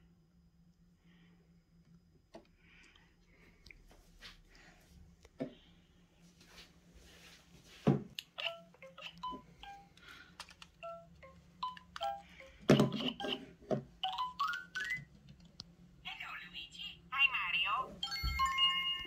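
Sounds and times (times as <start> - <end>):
electronic toy beeps and chimes: 8.4 - 10.0, 10.8 - 15.1, 18.0 - 19.0.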